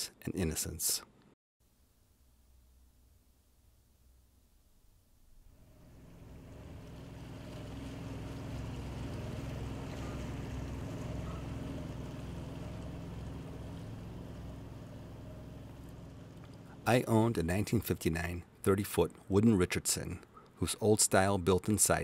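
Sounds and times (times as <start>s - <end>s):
motorboat engine droning: 5.5s - 18.1s.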